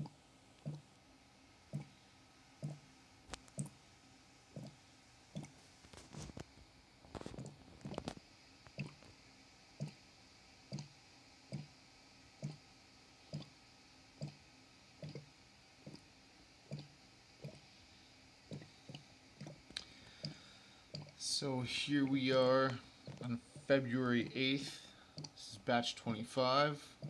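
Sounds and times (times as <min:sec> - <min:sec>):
airlock bubbling: 0:00.0 - 0:00.9, 0:04.5 - 0:05.6, 0:08.7 - 0:09.1, 0:15.0 - 0:16.1, 0:16.7 - 0:17.7, 0:18.4 - 0:27.0.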